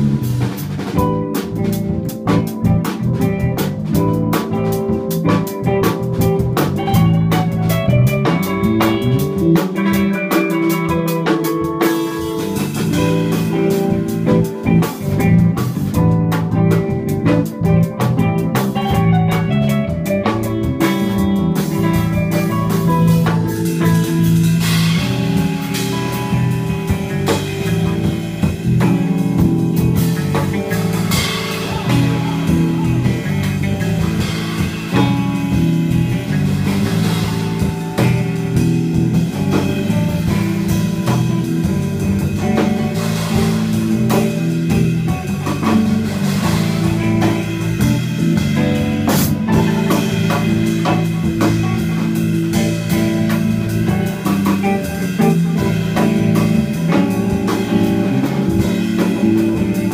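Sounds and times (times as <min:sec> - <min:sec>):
drum kit: 0:00.0 - 0:59.9
electric bass: 0:00.0 - 0:59.9
electric guitar: 0:00.0 - 0:59.9
keyboard: 0:00.0 - 0:59.9
cymbals: 0:20.4 - 0:59.9.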